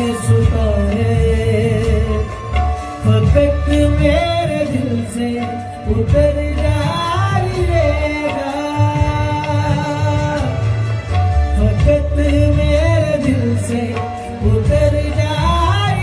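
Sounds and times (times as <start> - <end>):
drum accompaniment: 0.0 - 16.0
harmonium: 0.0 - 16.0
man singing: 0.0 - 16.0.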